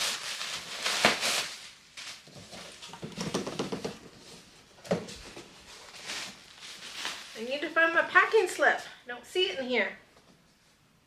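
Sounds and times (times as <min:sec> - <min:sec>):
plastic air pillows crinkling: 0:00.0 - 0:08.7.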